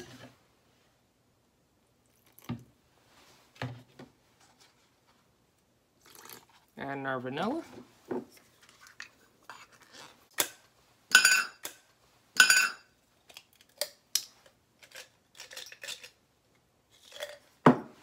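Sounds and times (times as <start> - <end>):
dishes and utensils clinking: 10.4 - 11.8, 12.4 - 12.9.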